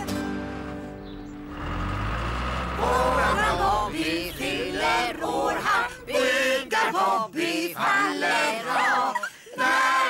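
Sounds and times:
voices singing together: 2.6s - 10.0s.

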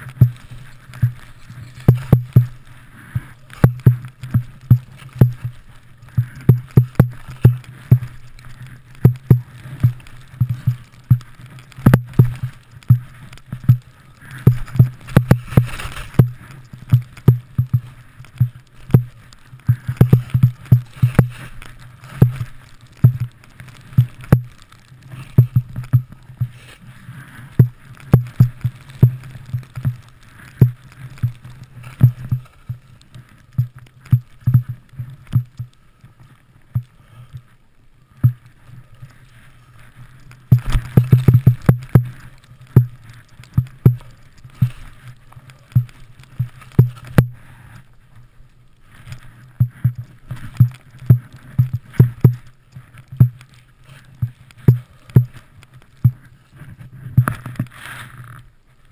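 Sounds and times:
skis hissing in snow: 26.2s - 27.9s, 56.3s - 58.3s.

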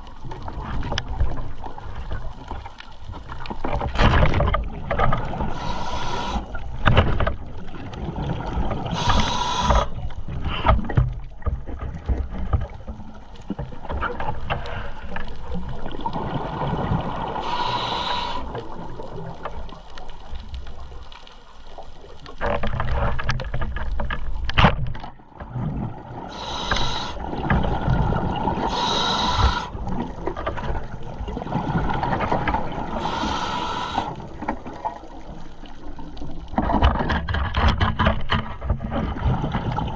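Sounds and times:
underwater rumble: 0.0s - 39.9s
short hissing bursts: 5.5s - 6.5s, 9.0s - 9.9s, 17.4s - 18.5s, 26.3s - 27.2s, 28.7s - 29.7s, 33.0s - 34.2s.

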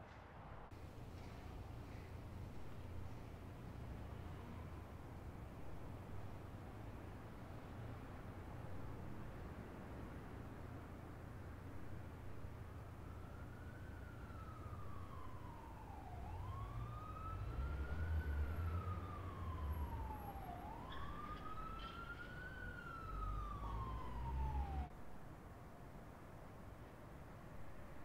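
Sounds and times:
emergency vehicle siren wailing: 11.7s - 24.9s.

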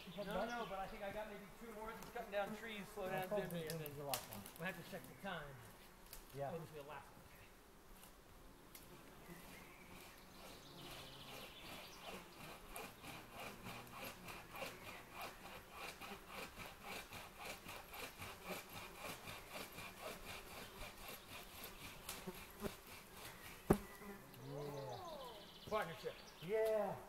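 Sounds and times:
hand saw cutting wood: 9.9s - 23.9s.

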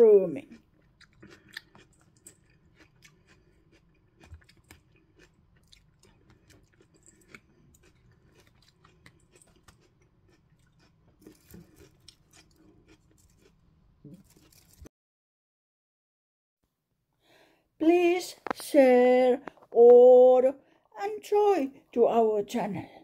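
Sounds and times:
chewing and mouth clicks: 0.5s - 14.9s.

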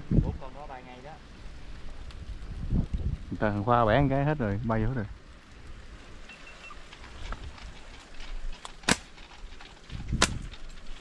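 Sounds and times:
slingshot shots: 8.8s - 9.1s, 10.2s - 10.5s.

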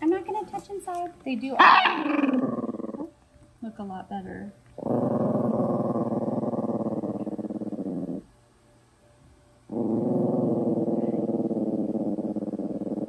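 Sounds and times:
small dog growling: 1.6s - 3.2s, 4.8s - 8.3s, 9.7s - 13.0s.

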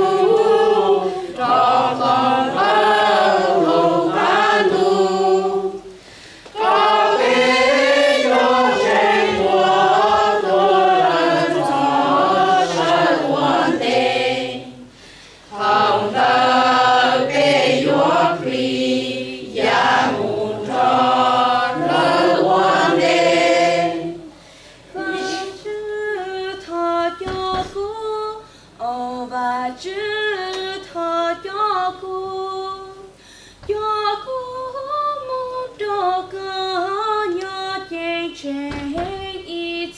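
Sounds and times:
mixed choir singing a hymn: 0.0s - 27.7s.

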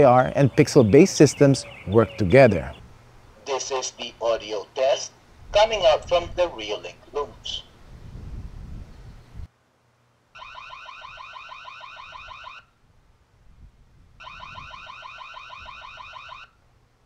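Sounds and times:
rapidly pulsing alarm siren: 10.4s - 12.8s, 14.2s - 16.6s.

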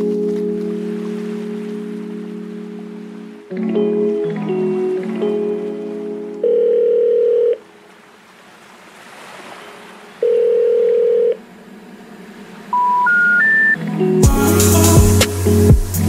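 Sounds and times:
long low telephone beeps: 6.4s - 7.7s, 10.2s - 11.4s, 12.8s - 13.8s
rising three-note tones: 11.6s - 16.0s.

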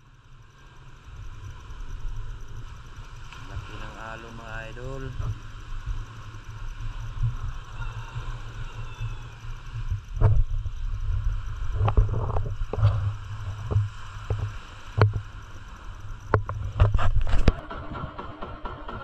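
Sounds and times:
wind on microphone: 4.7s - 18.3s
water against boat hull: 11.6s - 17.6s
knocks and clacks on boat: 11.8s - 15.3s, 16.2s - 19.0s.

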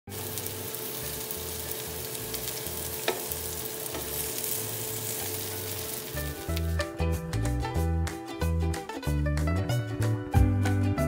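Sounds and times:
prawns sizzling in a grill pan: 0.1s - 6.8s.

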